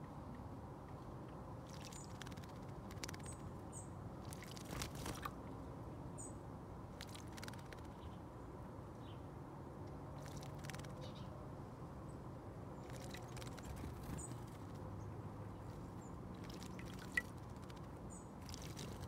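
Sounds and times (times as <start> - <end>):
bird splashing in water: 1.6 - 3.4, 4.2 - 5.4, 7.0 - 7.9, 10.2 - 10.9, 12.8 - 14.3, 16.3 - 19.0.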